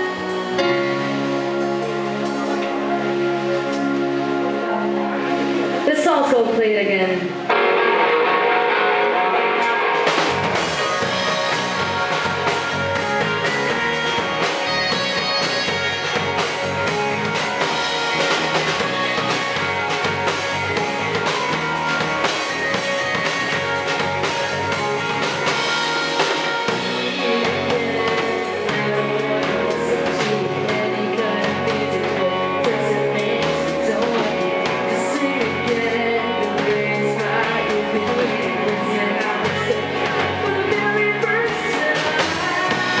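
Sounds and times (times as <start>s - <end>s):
drum kit: 0.0s - 5.9s, 7.4s - 43.0s
bass guitar: 0.0s - 43.0s
electric guitars: 0.0s - 43.0s
keyboard: 0.0s - 43.0s
woman singing: 10.7s - 16.9s, 26.2s - 43.0s.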